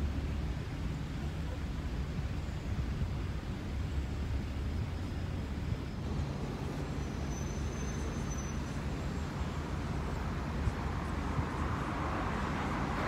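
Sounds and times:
city road traffic: 0.0s - 13.0s.

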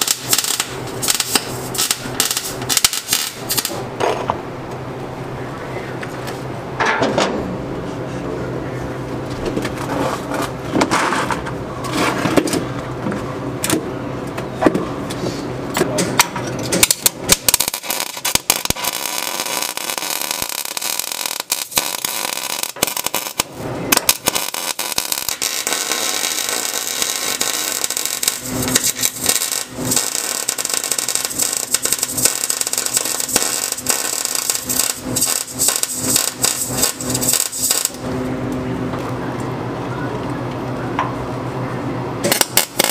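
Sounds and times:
welding arc crackling: 0.0s - 3.9s, 16.8s - 38.2s, 42.2s - 42.9s.

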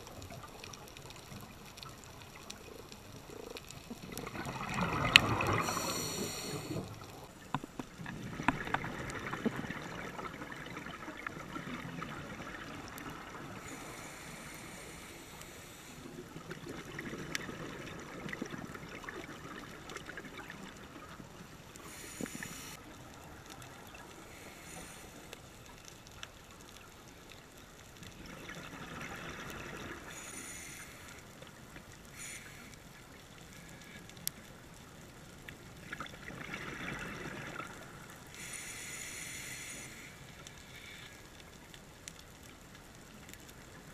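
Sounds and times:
exhaled bubbles gurgling underwater: 0.0s - 25.3s, 28.0s - 30.7s, 34.8s - 38.5s
regulator hiss: 5.6s - 7.3s, 21.8s - 22.8s, 38.4s - 41.0s.

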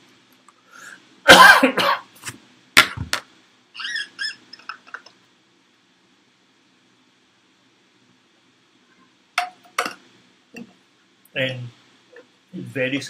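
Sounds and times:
man coughing: 1.3s - 2.1s.

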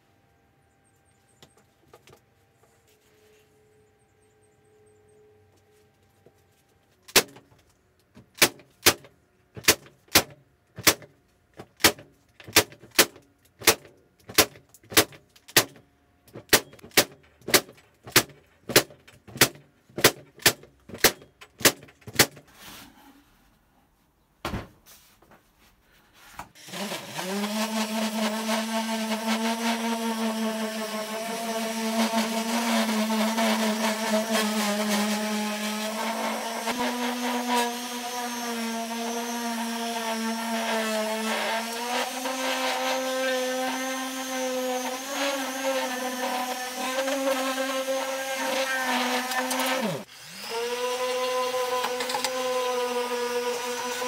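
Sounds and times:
nail gun firing: 7.1s - 7.4s, 8.3s - 11.1s, 11.8s - 15.8s, 16.4s - 22.4s
random orbital sander running: 26.6s - 54.0s.

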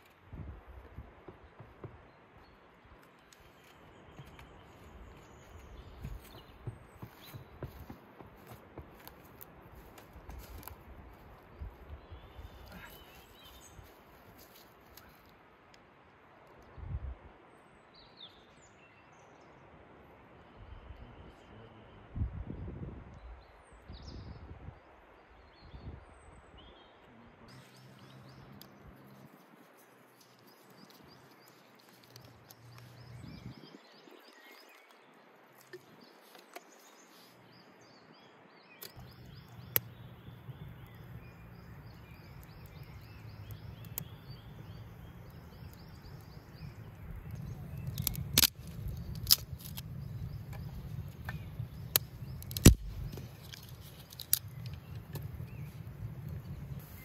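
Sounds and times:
birds chirping: 0.8s - 15.3s, 25.3s - 57.0s
sharp clicks: 38.8s - 40.0s, 47.3s - 55.4s.

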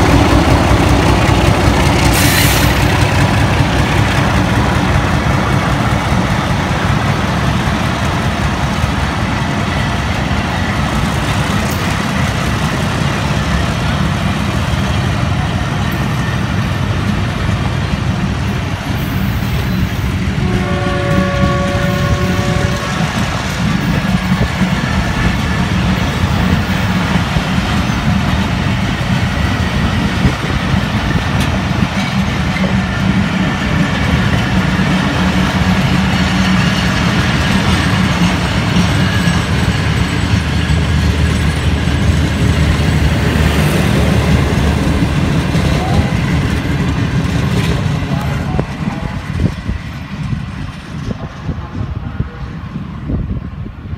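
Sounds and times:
train wheels rumbling on rails: 0.0s - 53.9s
train horn: 20.4s - 23.3s.

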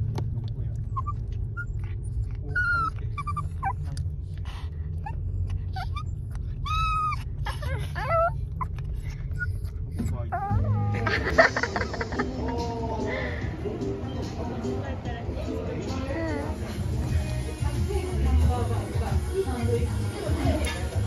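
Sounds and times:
low car rumble: 0.0s - 21.0s
dog whining: 0.8s - 4.0s, 5.0s - 11.3s.

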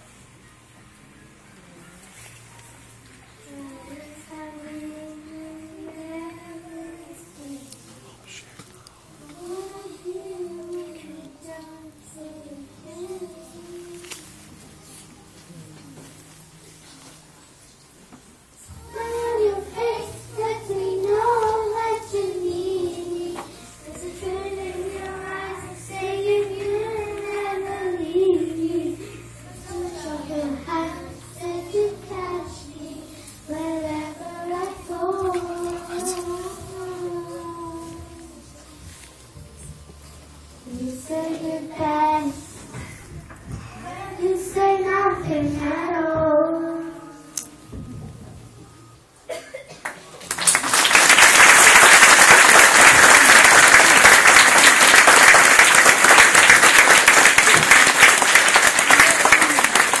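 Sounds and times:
quiet backing track: 0.0s - 60.0s
child singing a slow ballad: 3.3s - 8.2s, 9.2s - 15.1s, 18.6s - 39.8s, 40.6s - 49.6s
audience applause: 49.8s - 60.0s.

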